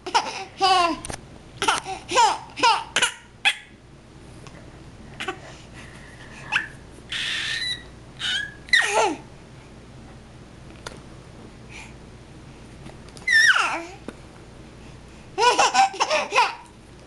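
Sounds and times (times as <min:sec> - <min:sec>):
baby laughing and squealing: 0:06.5 - 0:09.2, 0:13.2 - 0:14.0, 0:15.4 - 0:16.7.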